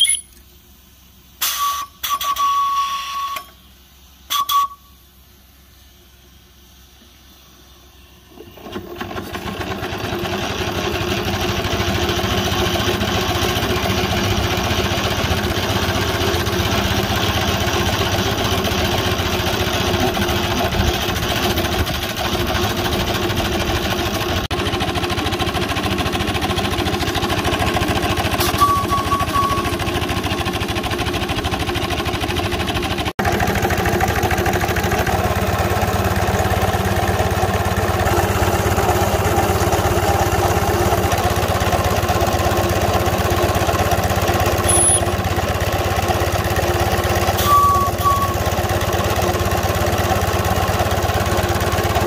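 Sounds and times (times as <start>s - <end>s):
steam traction engine running: 8.2s - 52.0s.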